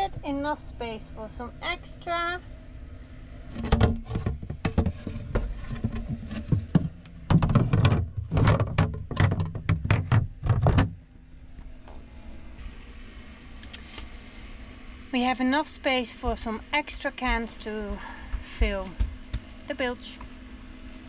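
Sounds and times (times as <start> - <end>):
tin cans knocking and clattering: 3.6 - 11.0.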